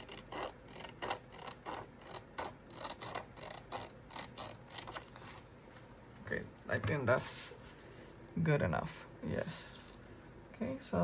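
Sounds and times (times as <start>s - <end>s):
scissors snipping paper: 0.0s - 5.4s.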